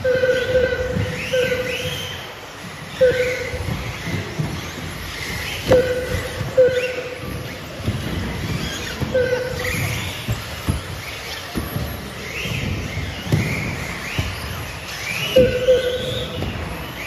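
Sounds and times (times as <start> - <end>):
short beep: 0.0 - 2.0, 3.0 - 3.6, 5.7 - 7.2, 15.4 - 16.4
rc car motors whining: 0.0 - 17.0
knocks: 3.0 - 14.7.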